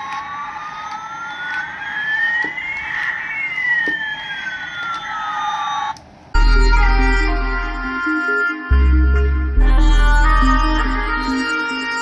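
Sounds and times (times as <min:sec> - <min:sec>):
toy electronic whines crossing: 0:00.0 - 0:06.0
steady electronic tone: 0:06.4 - 0:12.0.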